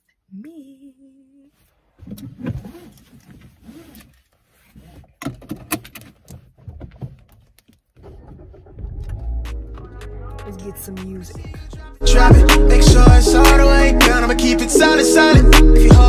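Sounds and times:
things handled inside a car: 1.5s - 10.9s
music playing: 9.0s - 16.0s.

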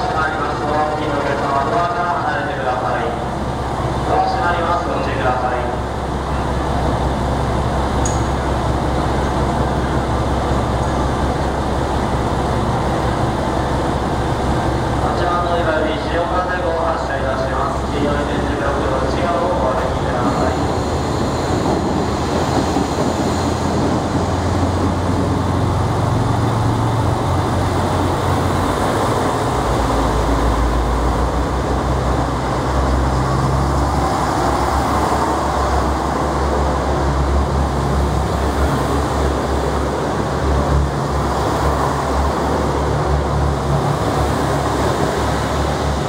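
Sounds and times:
diesel train engines rumbling: 0.0s - 46.0s.

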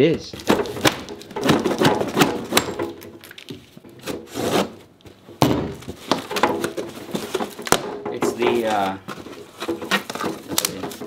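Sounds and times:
cardboard flaps rustling: 0.4s - 11.0s
box cutter scraping packing tape: 4.0s - 4.8s
cardboard tearing: 4.0s - 4.8s, 5.9s - 11.0s.

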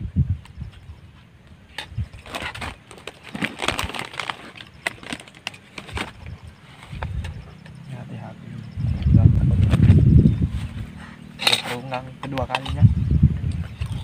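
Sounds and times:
plastic packaging crinkling: 2.2s - 6.3s.

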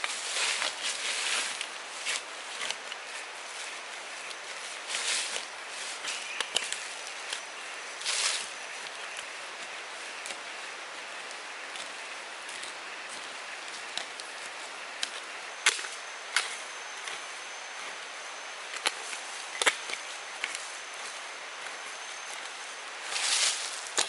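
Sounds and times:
steady high hiss: 0.0s - 24.0s
thin high tone: 3.4s - 9.5s.

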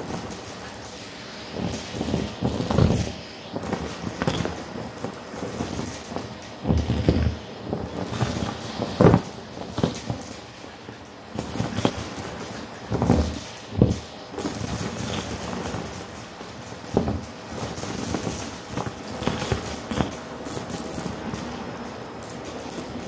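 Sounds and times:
vacuum suction hiss: 0.0s - 23.0s
hard bits rattling up vacuum tube: 11.4s - 23.0s.

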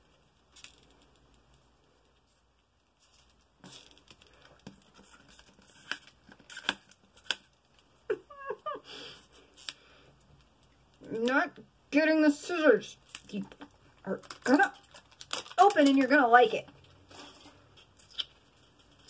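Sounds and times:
plastic wrapping tearing and crinkling: 2.2s - 7.9s, 13.0s - 19.0s.

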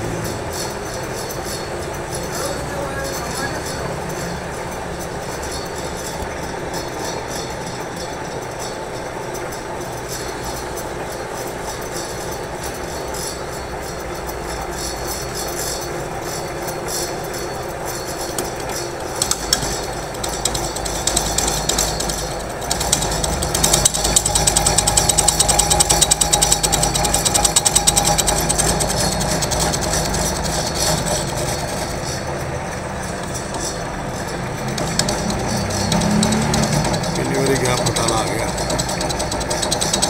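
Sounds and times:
cutting tool rattling scrape: 0.0s - 40.0s
metal lathe motor hum: 0.0s - 40.0s.

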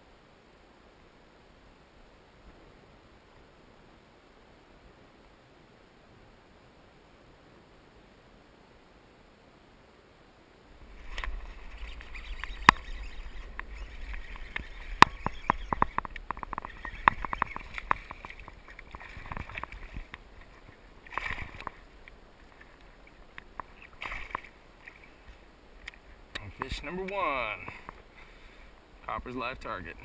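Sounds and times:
sharp clicks and knocks: 12.4s - 22.2s.

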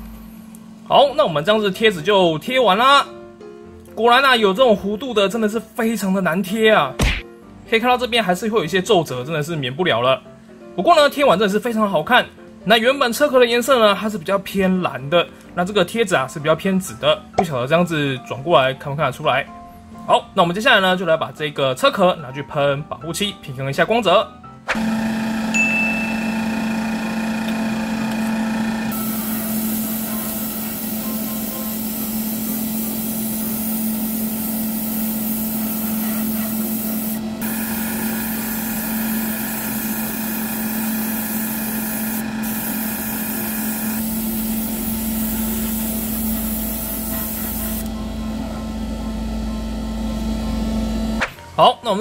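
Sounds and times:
airbrush spraying hiss: 28.9s - 47.9s.

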